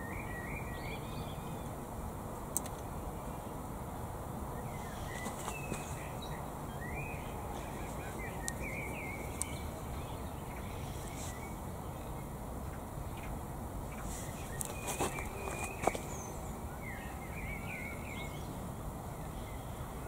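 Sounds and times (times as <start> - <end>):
breeze rushing: 1.4 - 17.4
faint ticks: 2.5 - 2.9
small birds chirping: 4.3 - 20.0.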